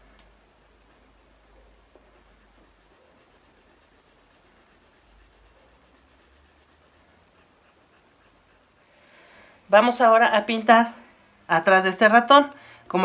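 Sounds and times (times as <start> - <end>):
pencil shading on paper: 0.4 - 9.0.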